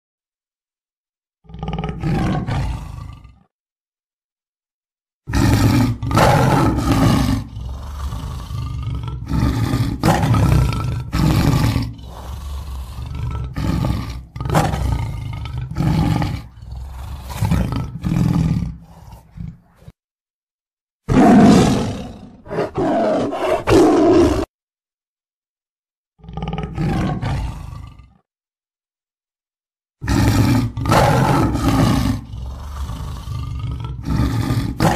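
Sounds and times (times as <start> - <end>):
tiger roaring and growling: 1.4 - 3.5, 5.3 - 20.0, 21.0 - 24.5, 26.2 - 28.3, 30.0 - 34.9.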